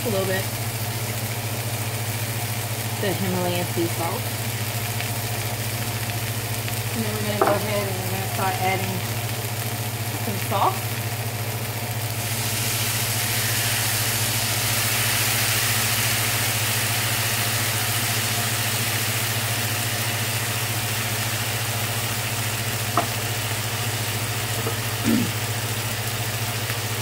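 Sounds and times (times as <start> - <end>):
vegetables sizzling in frying pan: 0.0 - 27.0.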